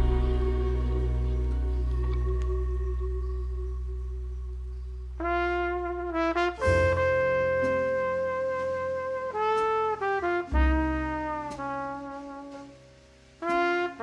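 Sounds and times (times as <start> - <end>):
deep bass note: 0.0 - 9.3
held chord: 0.0 - 14.0
melody of long notes: 0.0 - 14.0.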